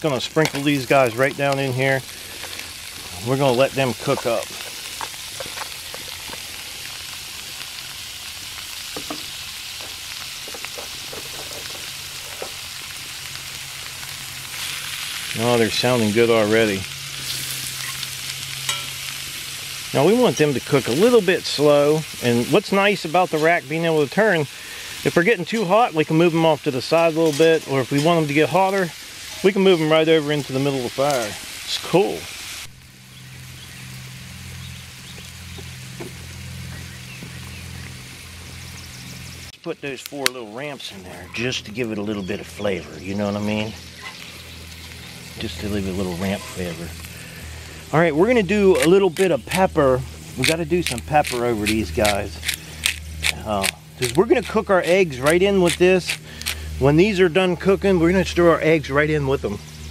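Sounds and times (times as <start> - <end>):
food sizzling in butter: 0.0 - 56.8
steady low hum: 32.6 - 59.9.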